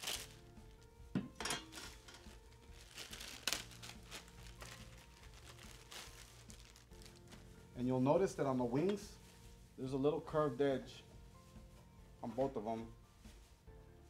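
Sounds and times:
plastic bag crinkling: 0.0s - 0.9s, 1.6s - 7.5s.

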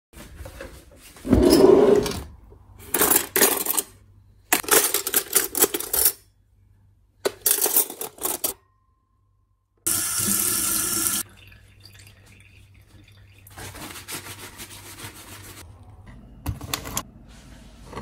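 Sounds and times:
cutlery clinking in drawer tray: 1.3s - 6.2s, 7.3s - 8.6s.

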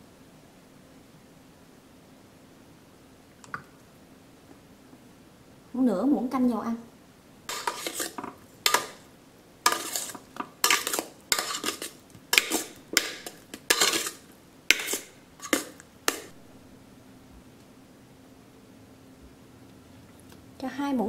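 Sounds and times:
utensil scraping steel colander: 7.5s - 9.0s, 9.6s - 16.3s.

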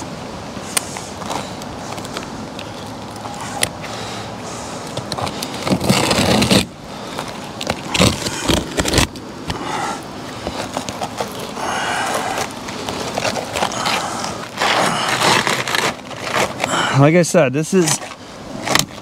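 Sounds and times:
knife scraping through shingles: 5.0s - 9.7s, 10.5s - 17.1s.

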